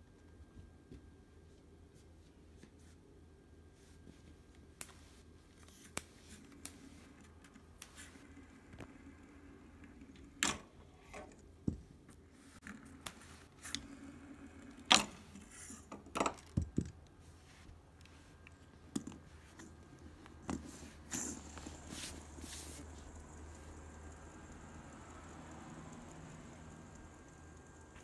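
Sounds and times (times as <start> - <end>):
fidget spinner clicking on wood: 19.0 - 28.0.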